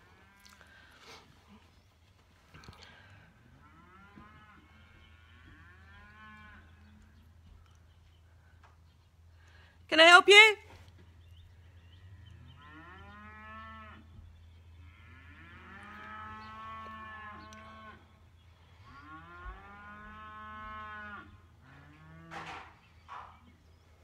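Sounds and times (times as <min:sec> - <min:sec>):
cattle mooing: 0:00.2 - 0:00.8, 0:03.4 - 0:06.9, 0:12.2 - 0:14.0, 0:14.9 - 0:18.0, 0:18.9 - 0:22.5.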